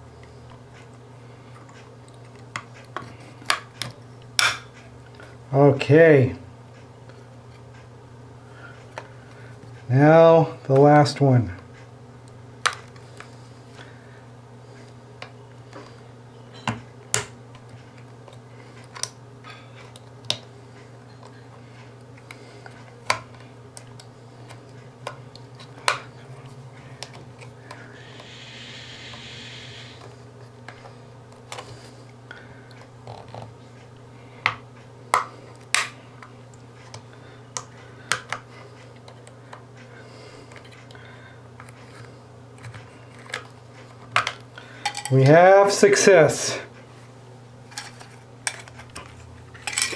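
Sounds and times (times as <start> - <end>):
steady low hum: 0.0 - 49.9.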